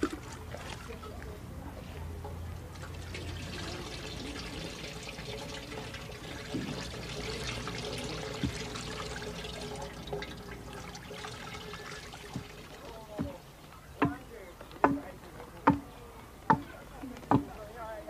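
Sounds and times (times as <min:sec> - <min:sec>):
liquid pouring and trickling: 0:00.0 - 0:01.2, 0:02.6 - 0:14.0
small drips and crackles: 0:00.0 - 0:13.9.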